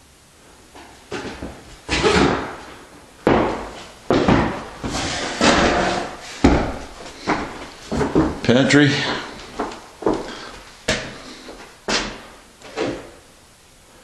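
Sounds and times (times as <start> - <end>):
heavy footsteps on floor: 0.8 - 13.1.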